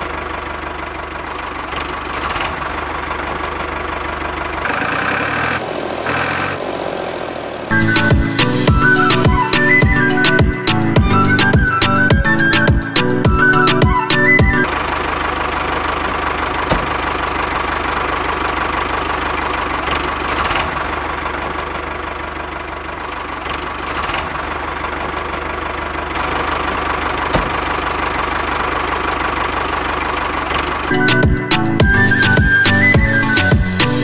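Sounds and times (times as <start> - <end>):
toy tractor engine knocking: 0.0 - 6.6, 14.7 - 31.4.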